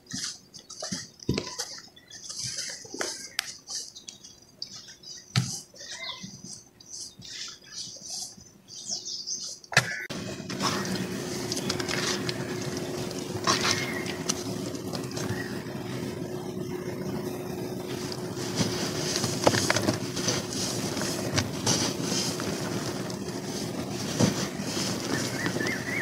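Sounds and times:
low hum: 0:10.1 - 0:26.0
hands squelching wet cement: 0:10.5 - 0:16.1.

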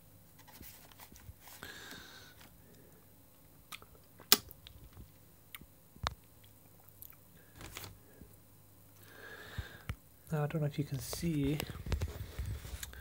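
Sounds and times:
cardboard and paper rustling: 0:00.4 - 0:01.7, 0:07.5 - 0:08.0, 0:11.0 - 0:13.0.

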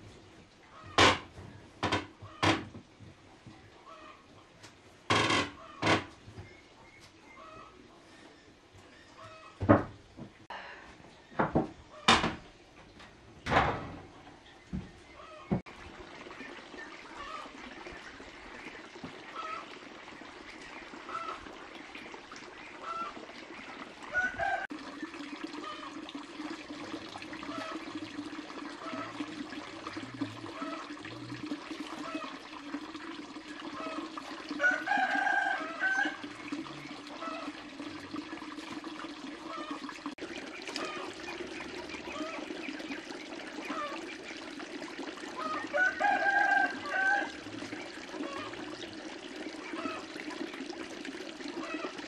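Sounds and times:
chickens calling: 0:22.5 - 0:24.8, 0:39.4 - 0:48.8
rooster crowing: 0:24.2 - 0:24.7, 0:34.6 - 0:36.2, 0:45.5 - 0:47.4.

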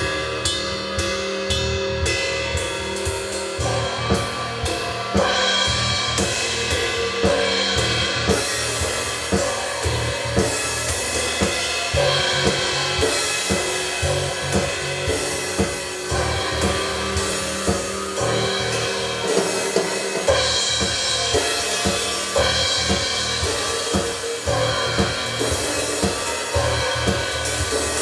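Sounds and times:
drum kit hits with cymbals: 0:00.0 - 0:28.0
held electronic drone tones: 0:03.6 - 0:28.0.

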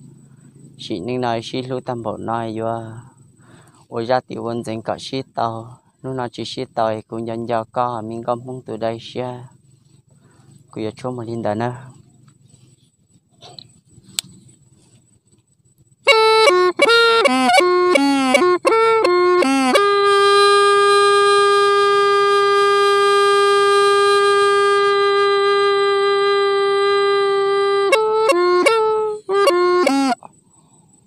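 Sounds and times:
bamboo pipe playing: 0:16.0 - 0:30.4.

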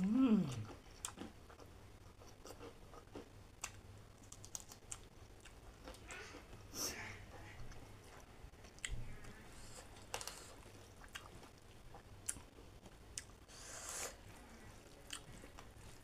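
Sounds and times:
close-up chewing: 0:00.4 - 0:06.7, 0:07.3 - 0:13.6.

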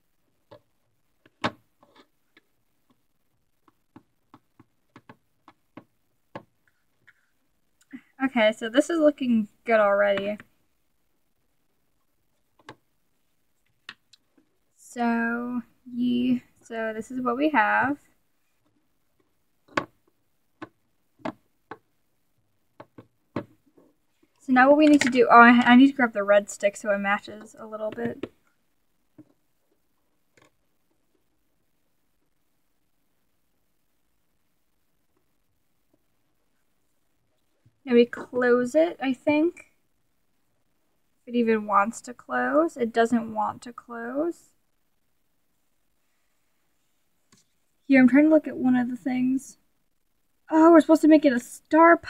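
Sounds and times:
fingers tapping plastic mold: 0:03.6 - 0:06.6, 0:19.6 - 0:21.9, 0:22.7 - 0:23.7.

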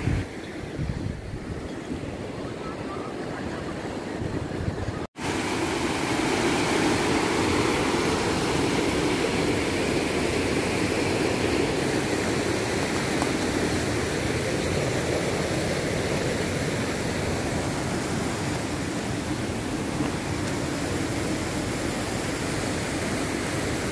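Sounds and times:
steady rushing noise: 0:04.2 - 0:23.9.

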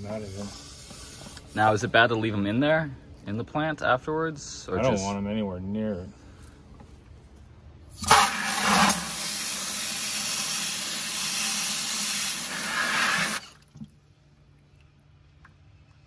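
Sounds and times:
hose nozzle spraying water: 0:08.0 - 0:13.6.

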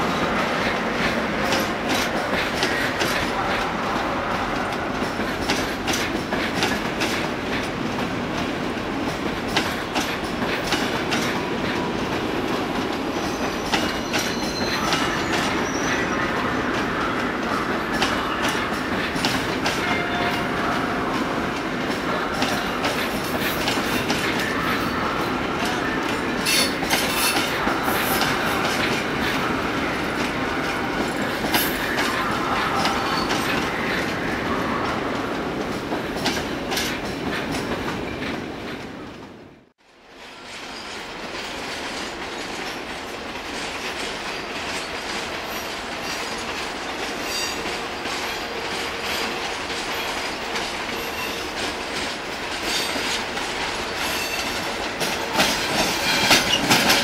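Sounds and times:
train wheels clacking over points: 0:00.0 - 0:16.0, 0:17.0 - 0:34.3, 0:40.6 - 0:57.0
train wheels clicking over rail joints: 0:04.6 - 0:15.6, 0:17.9 - 0:19.9, 0:25.6 - 0:29.4, 0:35.6 - 0:38.8, 0:40.5 - 0:57.0
wheel squeal: 0:13.2 - 0:16.0.

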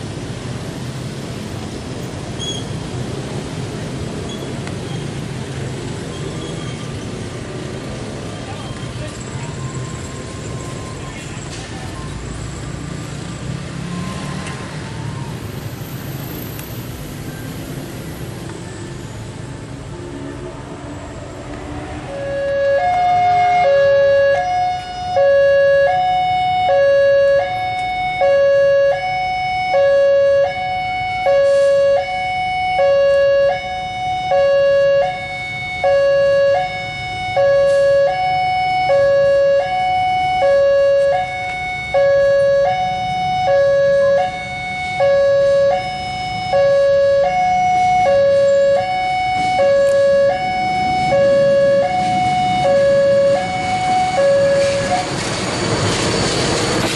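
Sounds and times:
diesel locomotive rumble: 0:14.4 - 0:56.9.

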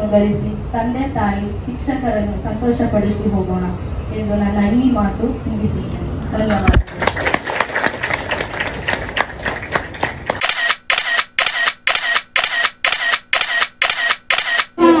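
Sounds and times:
camera shutter clicking: 0:10.4 - 0:14.8.

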